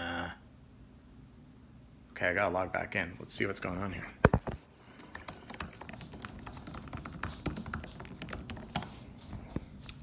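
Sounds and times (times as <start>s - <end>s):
computer keyboard typing: 5.0s - 9.1s.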